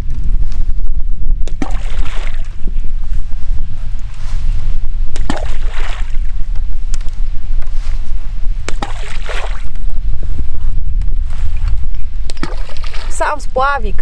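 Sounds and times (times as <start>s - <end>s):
wind buffeting microphone: 0.0s - 14.0s
splash in water: 8.7s - 9.6s, 12.3s - 13.1s.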